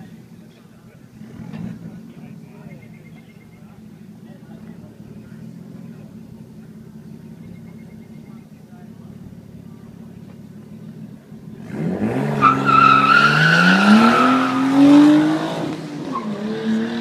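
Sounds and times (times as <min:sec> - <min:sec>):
race car engine revving: 0:00.0 - 0:17.0
tyres squealing: 0:12.0 - 0:17.0.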